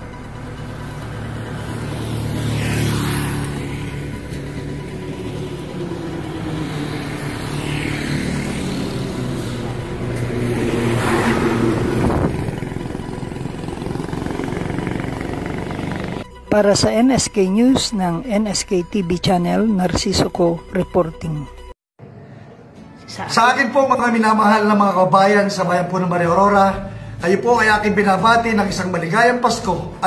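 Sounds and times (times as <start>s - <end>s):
motorcycles passing by: 0.0s - 16.3s.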